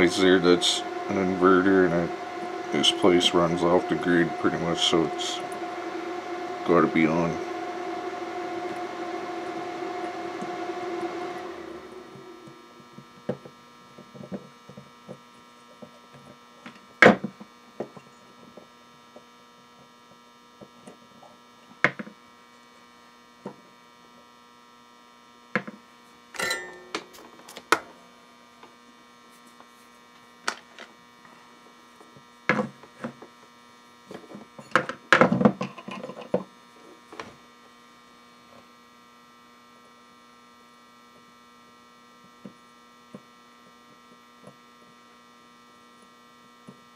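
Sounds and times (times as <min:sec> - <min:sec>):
power inverter humming: 0:00.0 - 0:14.4, 0:26.3 - 0:29.2.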